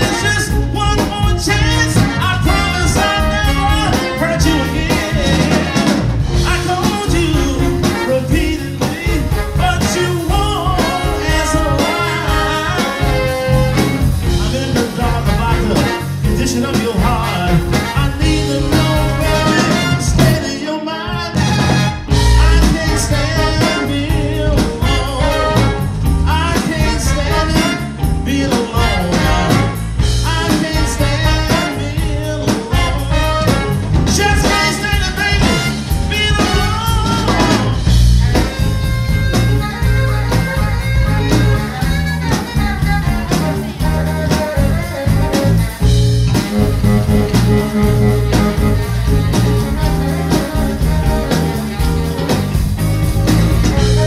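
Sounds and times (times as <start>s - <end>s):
live blues band playing: 0.0s - 54.0s.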